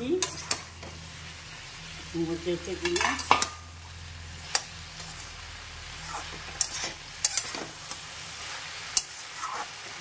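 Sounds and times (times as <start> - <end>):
metal spatula scraping pan: 0.0 - 1.0, 2.7 - 3.6, 5.9 - 10.0
soft sizzle: 0.0 - 10.0.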